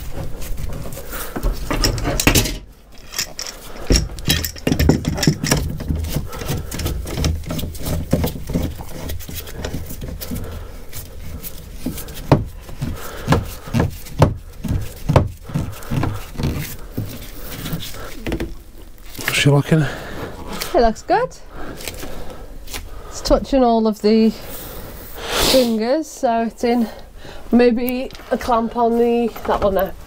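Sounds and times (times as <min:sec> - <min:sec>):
metallic clanks of clamps: 0:01.7 - 0:05.7
knocks on wood: 0:12.3 - 0:12.5, 0:13.3 - 0:16.6.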